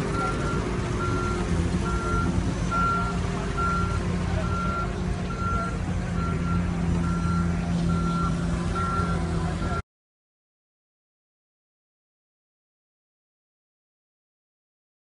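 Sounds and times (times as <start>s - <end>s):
backup alarm beeping: 0.0s - 9.8s
diesel machine running: 0.0s - 9.8s.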